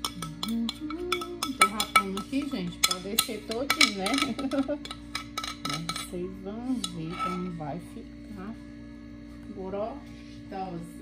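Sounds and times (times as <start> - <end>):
metal spoon clinking on glass bowl: 0.0 - 6.2, 6.8 - 7.5.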